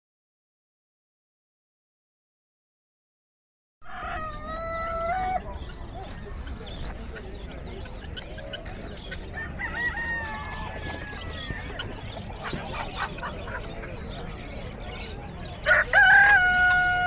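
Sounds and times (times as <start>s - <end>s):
rooster crowing: 3.8s - 5.4s, 15.7s - 17.0s.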